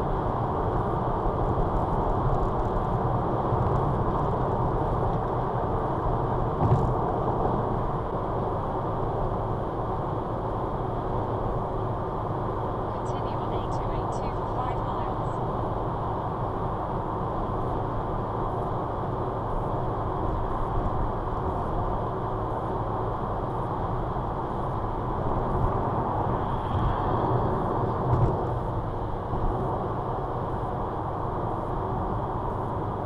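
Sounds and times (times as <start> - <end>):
car engine hum: 0.0 - 33.0
tyre and road noise: 0.0 - 33.0
brief thump: 6.6 - 6.9.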